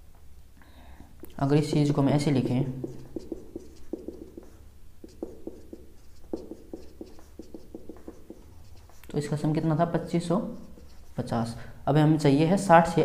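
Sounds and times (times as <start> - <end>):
felt-tip marker writing: 2.3 - 9.2, 10.6 - 11.2.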